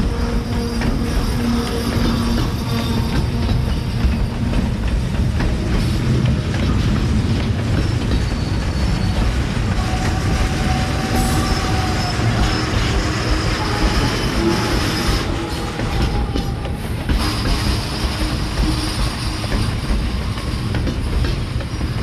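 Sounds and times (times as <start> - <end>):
train wheels rumbling on rails: 0.0 - 22.0
wheels clacking over rail joints: 0.0 - 22.0
faint wheel squeals: 7.4 - 16.5.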